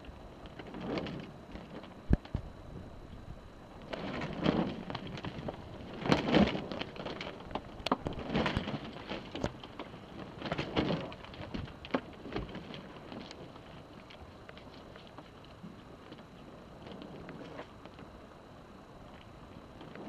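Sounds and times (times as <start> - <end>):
water sloshing against a hull: 0.0 - 20.0.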